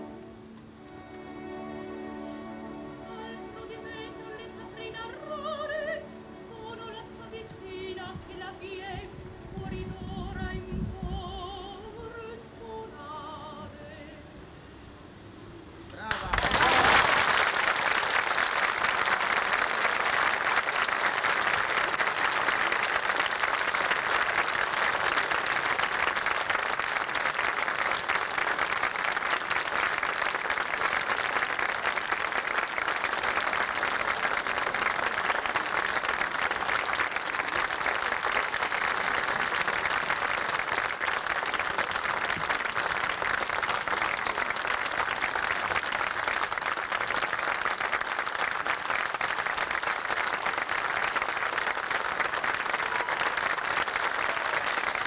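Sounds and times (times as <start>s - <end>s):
audience applauding: 16.0s - 55.0s.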